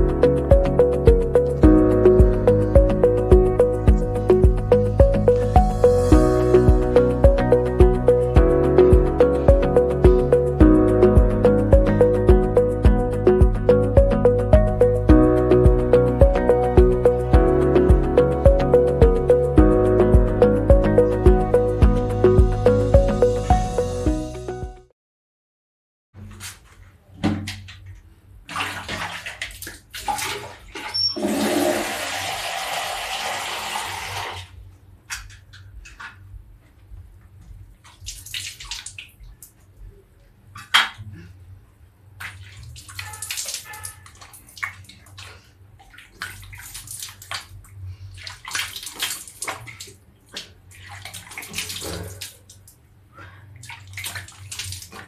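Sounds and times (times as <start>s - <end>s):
water splashing and sloshing: 26.2s - 32.3s, 37.5s - 39.8s, 42.0s - 55.0s
water pouring from a jug: 28.5s - 34.5s.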